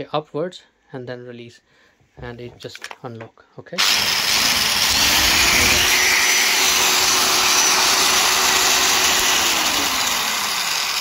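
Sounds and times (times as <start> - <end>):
electric drill whining: 3.8 - 11.0.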